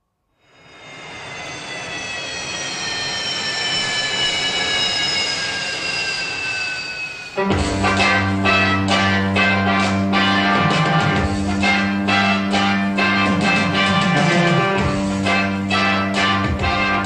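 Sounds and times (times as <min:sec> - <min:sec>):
jet engine whine: 0:00.4 - 0:17.0
music: 0:07.4 - 0:17.0.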